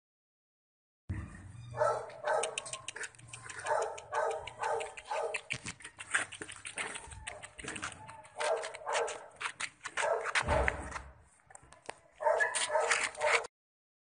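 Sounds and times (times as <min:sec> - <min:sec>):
puppy yipping and barking: 0:01.5 - 0:09.3, 0:12.2 - 0:13.5
low thump: 0:10.4 - 0:11.1.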